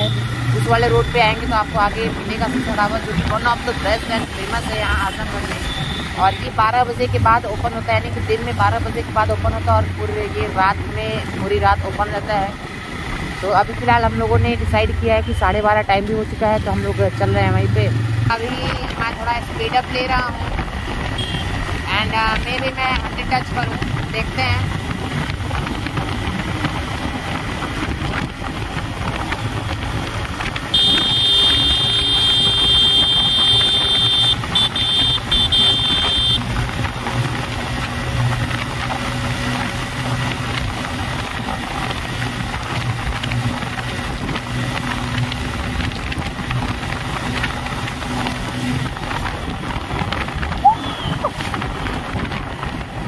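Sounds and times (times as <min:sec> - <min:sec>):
motorcycle engine accelerating: 0:00.0 - 0:53.0
wind noise on microphone: 0:18.2 - 0:53.0.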